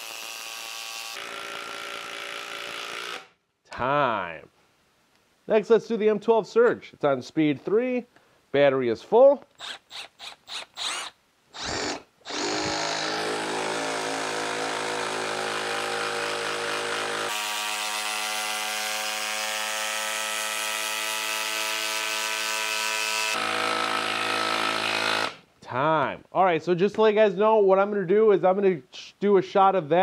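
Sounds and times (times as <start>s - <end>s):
impact driver driving screw into wood: 0.0s - 3.3s, 9.6s - 18.5s, 23.3s - 25.4s.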